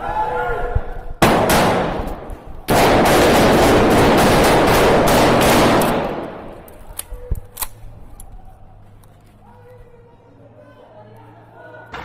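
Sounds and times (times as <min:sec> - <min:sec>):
single sharp gunshots: 0:01.2 - 0:06.5
automatic gunfire: 0:01.2 - 0:06.6.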